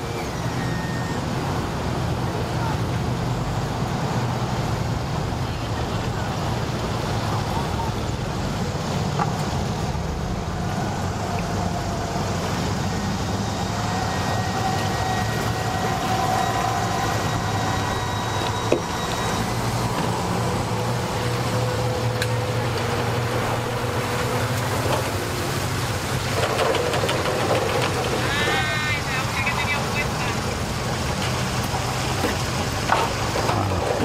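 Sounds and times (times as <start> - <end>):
outboard motor idling: 0.0 - 34.0.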